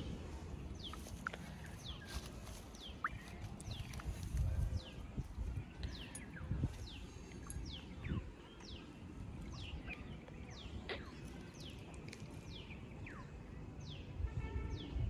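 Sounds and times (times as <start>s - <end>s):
low background noise: 0.0s - 14.7s.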